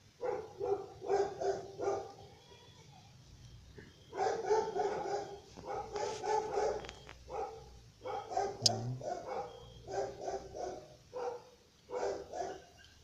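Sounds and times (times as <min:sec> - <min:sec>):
dog barking: 0:00.2 - 0:02.2, 0:04.1 - 0:13.0.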